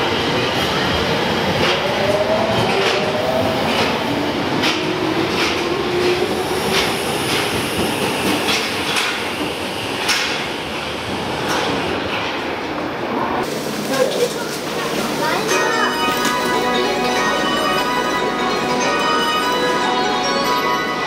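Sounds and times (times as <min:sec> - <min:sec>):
train wheels clicking over rail joints: 0:04.6 - 0:12.4.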